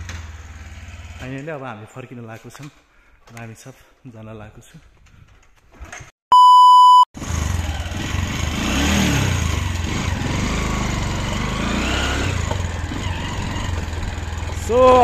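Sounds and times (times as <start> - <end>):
electronic beep: 6.3 - 7.1
motorcycle engine rumbling: 7.2 - 15.0.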